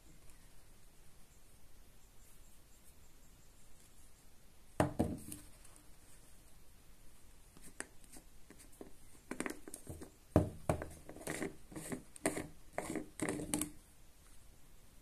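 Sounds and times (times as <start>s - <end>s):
jar knocks taps and scrapes: 7.6s - 13.8s.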